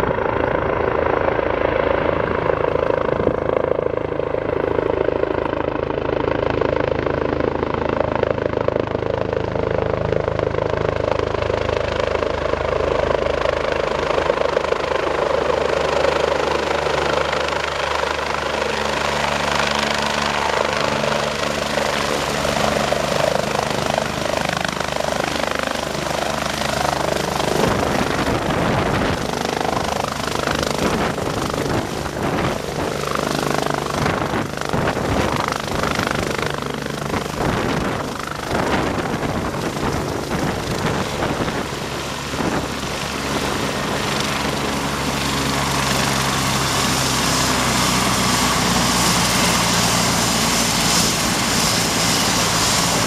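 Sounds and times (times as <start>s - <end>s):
helicopter rotor chopping: 0.0s - 53.0s
gusty rushing wind: 16.6s - 53.0s.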